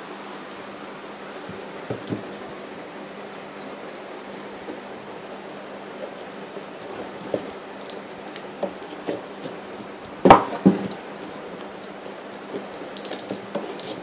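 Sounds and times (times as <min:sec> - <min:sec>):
box knocks: 0:10.2 - 0:11.0
scissors snipping tape: 0:12.6 - 0:14.0.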